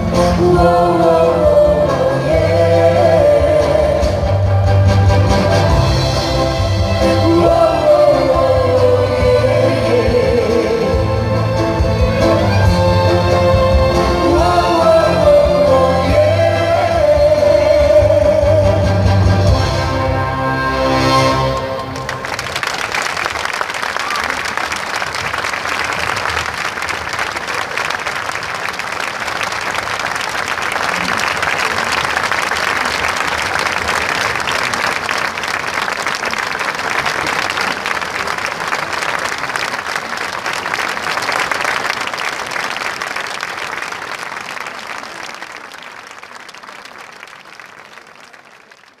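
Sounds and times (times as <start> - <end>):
large audience applauding: 21.4 - 49.0.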